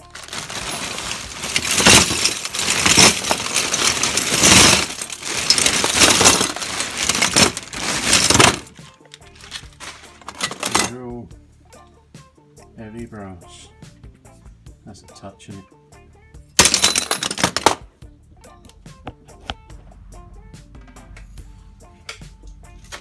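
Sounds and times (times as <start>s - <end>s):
plastic bag crinkling: 0.0s - 10.6s.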